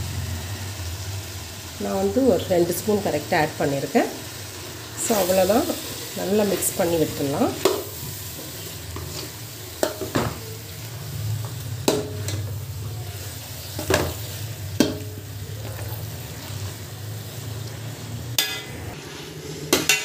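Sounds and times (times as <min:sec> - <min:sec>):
faint sizzle: 0:00.0 - 0:20.0
metal spatula scraping a pot: 0:05.2 - 0:10.1
spatula clinking against pot: 0:18.4 - 0:18.8.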